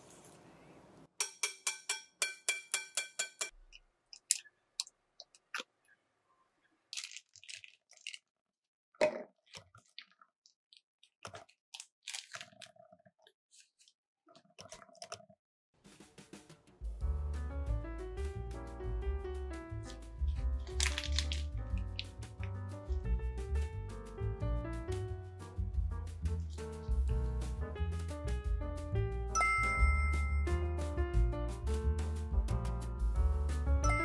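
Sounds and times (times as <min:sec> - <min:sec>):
plastic piping bag rustling: 0:06.9 - 0:08.3, 0:09.5 - 0:12.9, 0:19.8 - 0:22.3.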